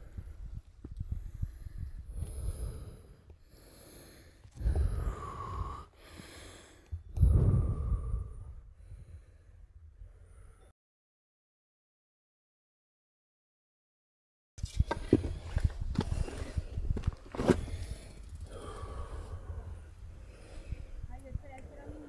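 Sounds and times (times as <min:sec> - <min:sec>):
person breathing hard: 0:00.0 - 0:10.7, 0:14.8 - 0:21.1.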